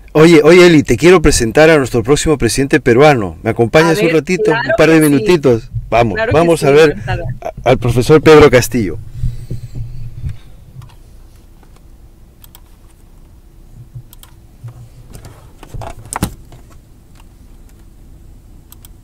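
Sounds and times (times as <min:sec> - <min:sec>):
faint low hum: 0:00.0 - 0:19.0
keyboard and mouse clicks: 0:12.4 - 0:12.7, 0:13.8 - 0:14.4, 0:18.7 - 0:19.0.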